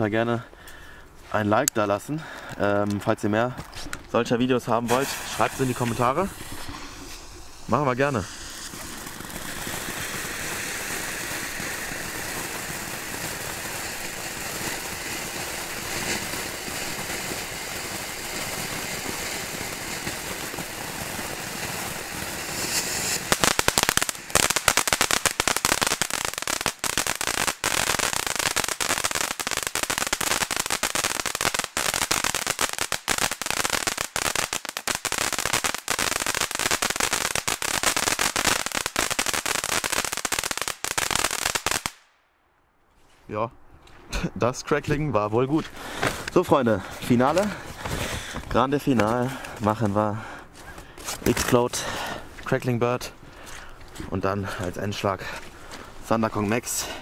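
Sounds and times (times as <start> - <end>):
loud dense crackling: 4.4 - 42.1
firework fountain hissing: 4.8 - 42.0.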